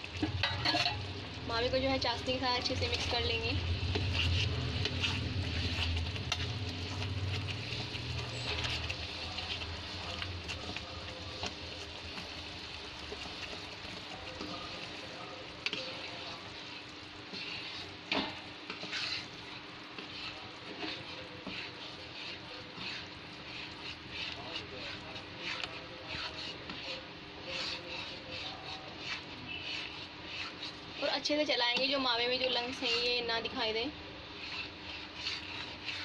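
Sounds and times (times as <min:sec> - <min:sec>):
spoon scraping pan: 0:00.0 - 0:36.0
syrup bubbling and sizzling: 0:00.0 - 0:36.0
spoon knocking pan: 0:00.2 - 0:01.1.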